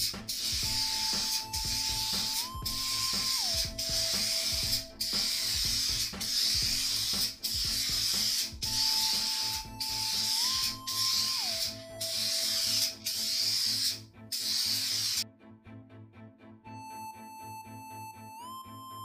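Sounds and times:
spray paint can spraying: 0.0s - 15.2s.

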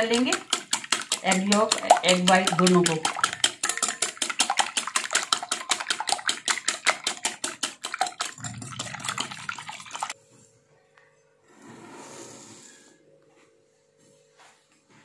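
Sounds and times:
whisk clicking against glass bowl: 0.0s - 10.2s.

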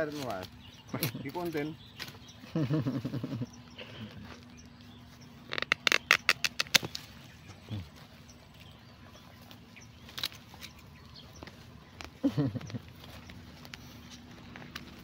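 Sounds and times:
pruning shears snipping stems: 5.6s - 7.1s, 10.1s - 10.9s.

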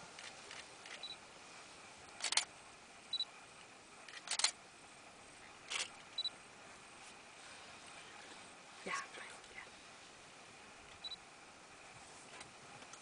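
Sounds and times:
camera focus beeps: 0.9s - 1.2s, 5.8s - 6.3s, 11.0s - 11.2s
camera shutter clicks: 2.2s - 2.5s, 4.1s - 4.6s.

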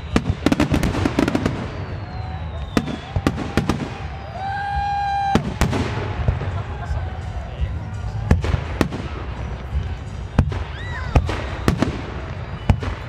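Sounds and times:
steady high whistle: 0.0s - 5.4s
fireworks cracks and bangs: 0.0s - 13.0s
thin falling whistle: 1.5s - 3.3s.

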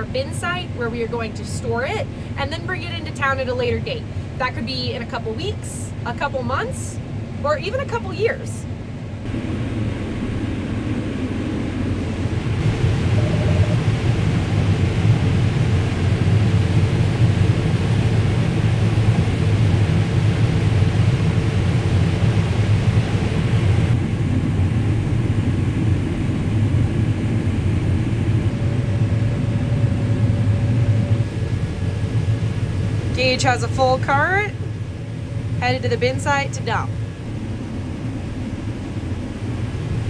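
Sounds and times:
farm machinery engine drone: 0.0s - 40.0s
rushing noise: 9.3s - 15.8s.

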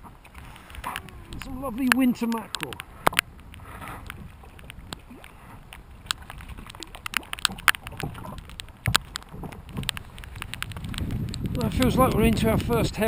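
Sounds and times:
water sloshing against kayak hull: 0.0s - 12.7s
clicks and knocks of handled gear: 5.7s - 12.3s.

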